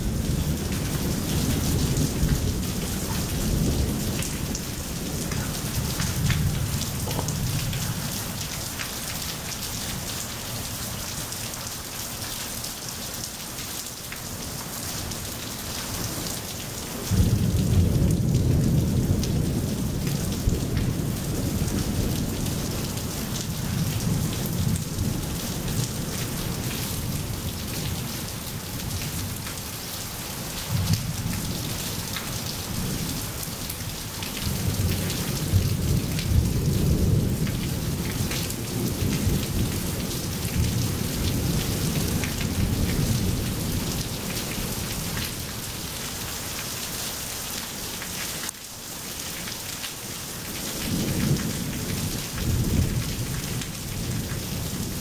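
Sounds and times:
rolling thunder: 0:00.0 - 0:08.6, 0:17.0 - 0:26.2
rain on wet pavement: 0:00.0 - 0:55.0.

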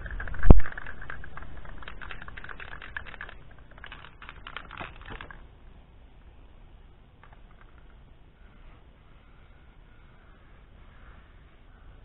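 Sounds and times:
spray can ball rattling: 0:00.0 - 0:05.4.

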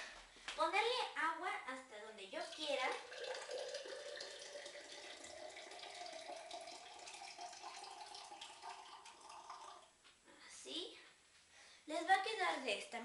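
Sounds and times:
water pouring into a glass: 0:02.3 - 0:10.0.

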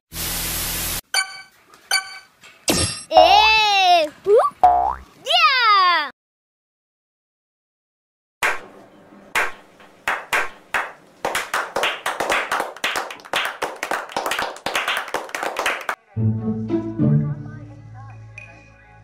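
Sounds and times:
people clapping: 0:08.4 - 0:08.7, 0:09.4 - 0:16.0.

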